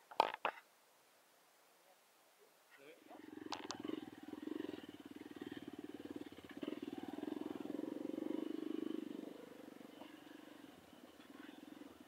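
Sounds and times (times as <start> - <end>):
motorcycle engine idling: 3.2 - 12.0.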